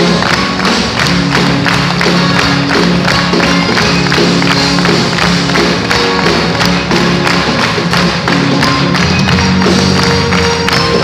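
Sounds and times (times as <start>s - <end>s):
double bass: 0.0s - 11.0s
drums: 0.0s - 11.0s
guitar: 0.0s - 11.0s.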